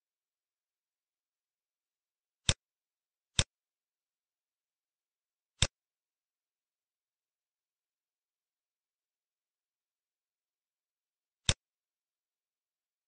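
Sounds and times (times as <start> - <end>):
computer mouse clicks: 5.6 - 5.8, 11.4 - 11.7.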